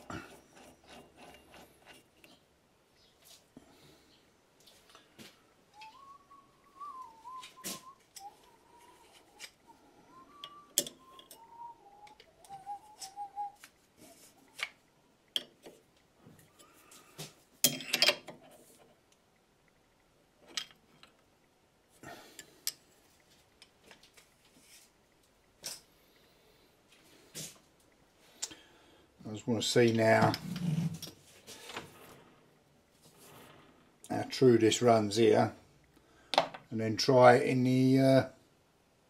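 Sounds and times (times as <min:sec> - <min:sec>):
soft wavering whistling: 0:05.7 - 0:14.6
tools clicking and knocking on metal: 0:10.4 - 0:11.4, 0:15.3 - 0:15.8, 0:17.6 - 0:18.6.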